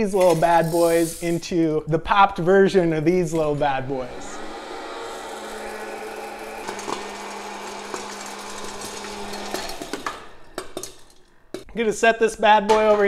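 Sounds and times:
popcorn popper fan hum: 0:04.0 - 0:10.6.

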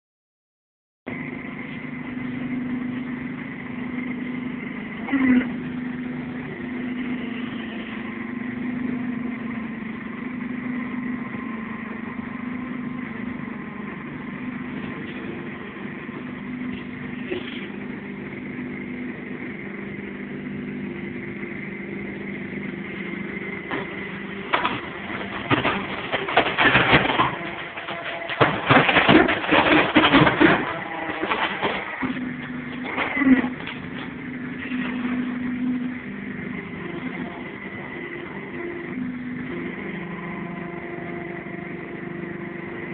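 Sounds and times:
tyre-cutting machine motor running: 0:01.1 - 0:42.9.

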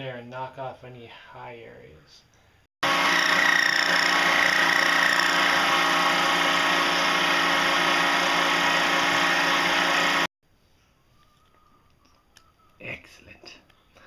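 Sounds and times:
metal lathe motor whining: 0:02.8 - 0:10.3.

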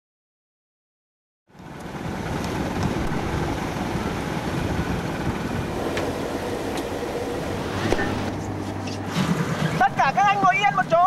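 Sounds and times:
ship engine rumble: 0:01.6 - 0:11.0
wind rushing: 0:02.0 - 0:09.8.

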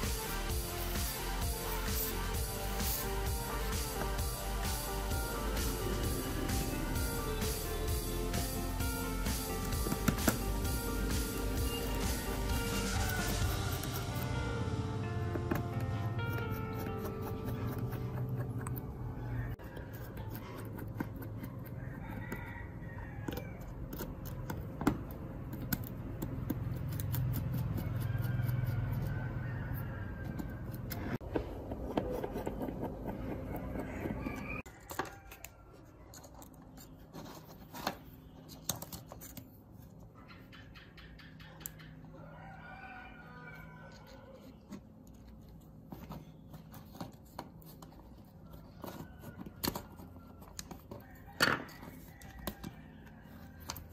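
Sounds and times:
low hum: 0:00.0 - 0:19.6
screwdriver clicking and scraping: 0:19.6 - 0:21.8, 0:23.3 - 0:29.1.

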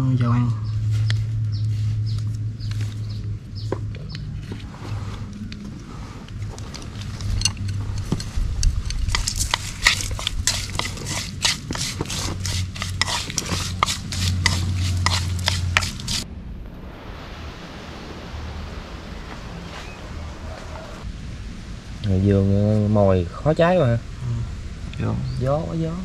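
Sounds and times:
metal utensil scraping cookware: 0:06.9 - 0:16.2.

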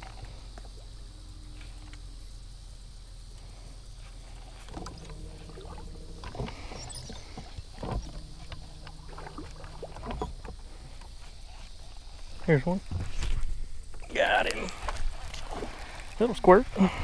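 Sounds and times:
low hum: 0:00.0 - 0:14.1.

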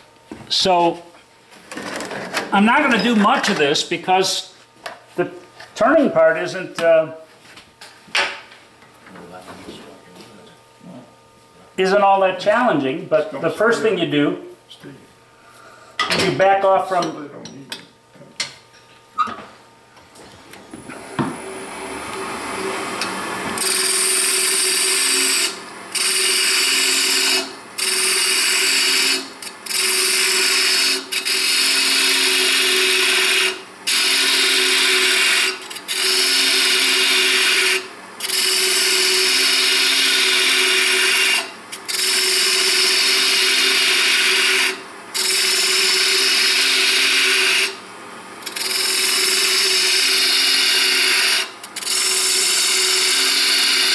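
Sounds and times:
wood lathe humming: 0:20.8 - 0:53.9
tool scraping spinning wood: 0:48.4 - 0:53.9.

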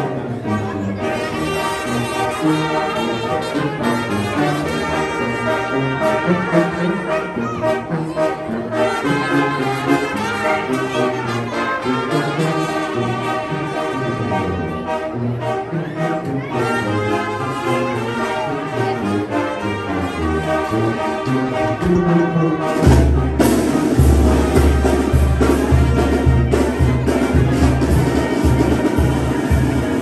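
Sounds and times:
brass band playing: 0:00.0 - 0:30.0.

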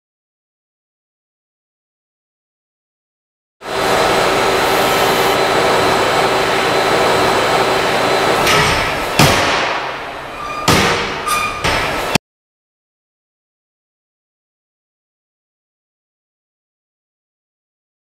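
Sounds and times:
loud steady mechanical noise: 0:03.6 - 0:12.2
faint hum: 0:03.7 - 0:09.1
knocks and clatter: 0:10.6 - 0:12.2.

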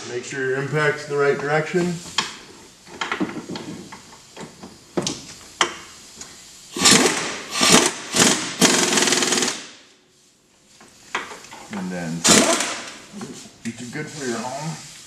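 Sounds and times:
impact wrench rattling: 0:06.8 - 0:09.6, 0:12.3 - 0:13.0.

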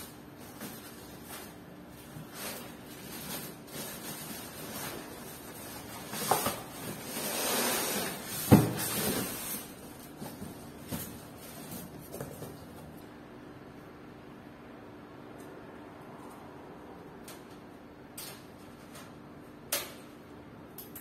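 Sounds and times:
cardboard and foam scraping: 0:02.1 - 0:12.4.

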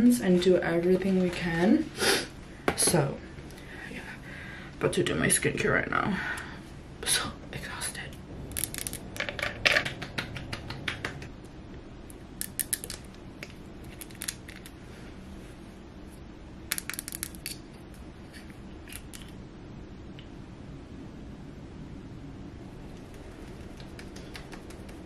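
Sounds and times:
nails tapping plastic containers: 0:08.6 - 0:11.4.

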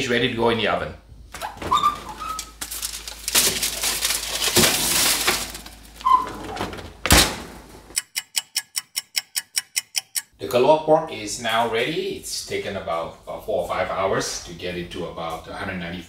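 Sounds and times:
oven door hinges squeaking: 0:01.4 - 0:02.6, 0:05.9 - 0:07.1
foil-wrapped pan rustling and scraping: 0:02.0 - 0:06.9
rapid even ticking: 0:08.0 - 0:10.4.

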